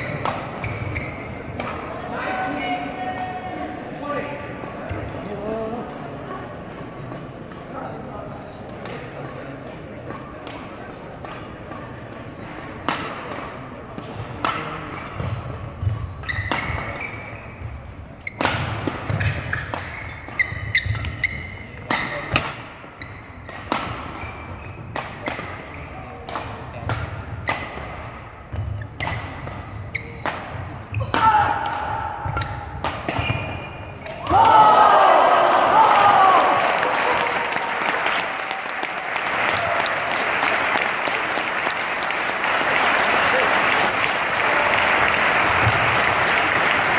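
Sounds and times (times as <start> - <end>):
sneakers squeaking: 0.0 - 1.8, 14.8 - 31.4, 32.0 - 34.6
rackets smacking shuttlecock: 0.0 - 2.0, 9.7 - 27.9, 28.5 - 34.6
spectators applauding: 35.0 - 46.9.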